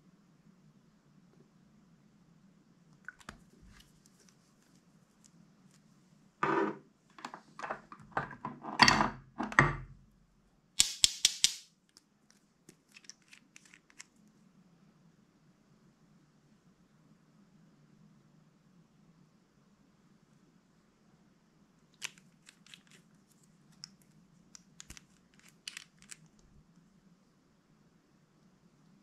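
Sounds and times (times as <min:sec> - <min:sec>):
sharp clicks: 0:10.8 - 0:11.6.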